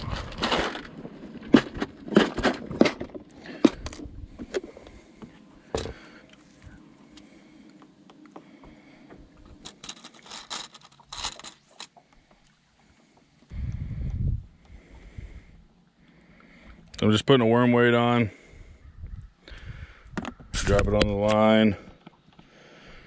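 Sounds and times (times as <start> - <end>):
rummaging rattle of tackle: 0.0 - 4.8, 5.7 - 6.1, 9.5 - 12.0.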